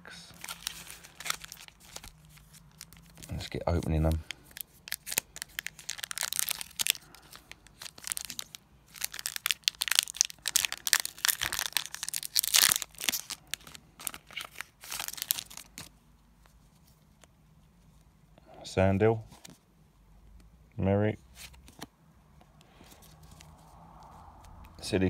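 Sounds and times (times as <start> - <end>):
foil wrapper tearing and crinkling: 0.4 - 15.9.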